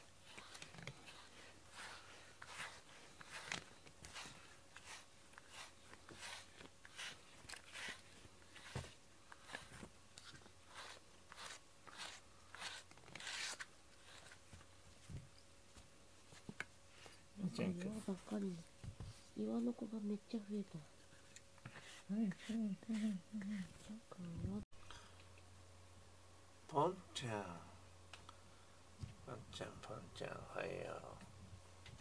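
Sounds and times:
cat chewing rubber brush: 0.2s - 12.8s.

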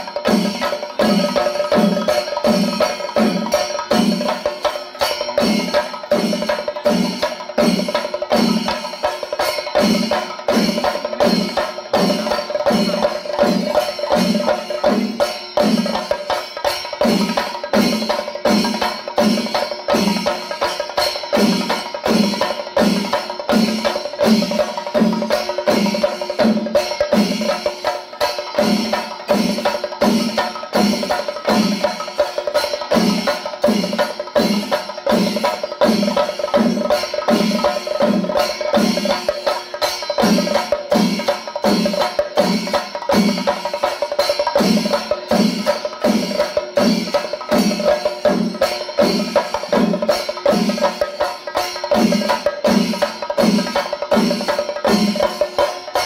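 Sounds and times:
drums beaten with sticks: 0.0s - 56.0s
hand cymbals ringing: 0.0s - 56.0s.

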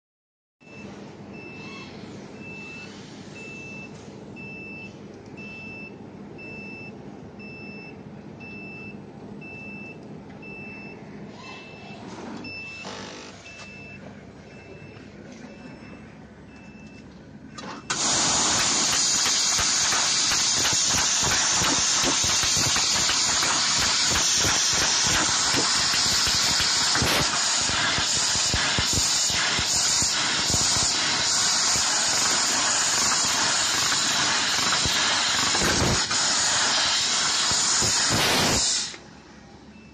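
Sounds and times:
laser cutter gas hiss: 17.9s - 39.0s.

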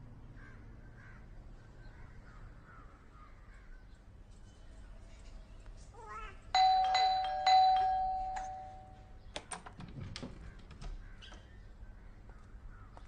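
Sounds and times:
doorbell chime ding-dong: 6.6s - 9.0s.

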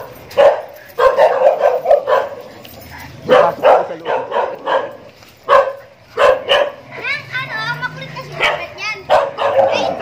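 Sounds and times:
dog barking: 0.0s - 2.5s, 3.3s - 6.8s, 8.3s - 10.0s.

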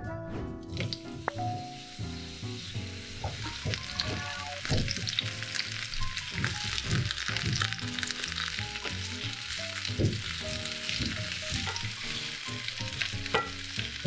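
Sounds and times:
soft background music: 0.0s - 14.0s
onions sizzling in a frying pan: 0.7s - 14.0s
spatula knocking against pan: 9.9s - 12.0s, 13.2s - 13.6s.

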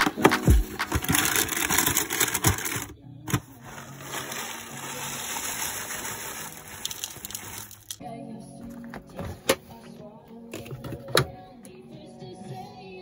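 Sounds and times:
granola pouring into bowl: 3.9s - 8.0s.

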